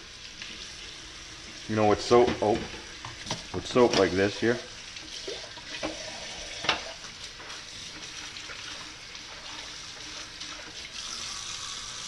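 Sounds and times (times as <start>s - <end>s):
water running into steel sink: 0.0s - 12.0s
knife being washed: 2.4s - 12.0s.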